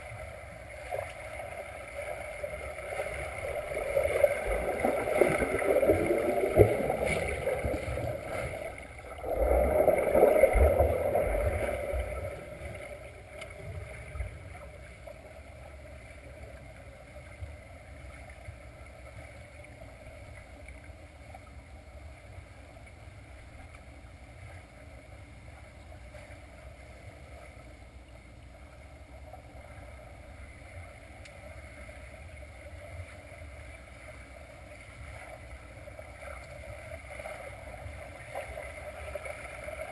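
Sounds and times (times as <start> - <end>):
swimmers churning water underwater: 0.0 - 20.8, 23.6 - 39.9
faint underwater hum: 0.0 - 39.9.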